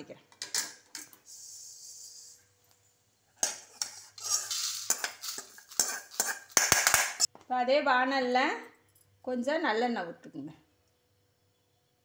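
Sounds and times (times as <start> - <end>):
metal tongs clinking on pan: 3.4 - 7.3
dry spices rattling onto plate: 3.8 - 7.3.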